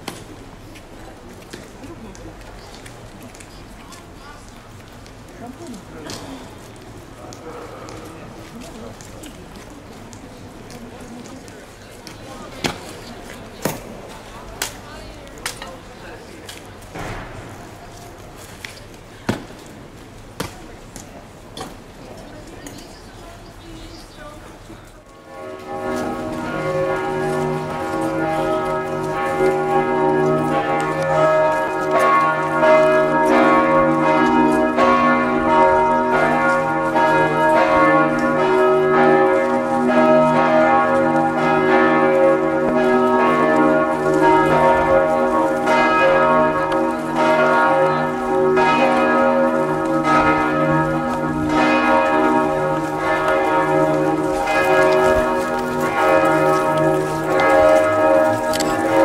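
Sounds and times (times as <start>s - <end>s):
church bells ringing: 25.0s - 59.0s.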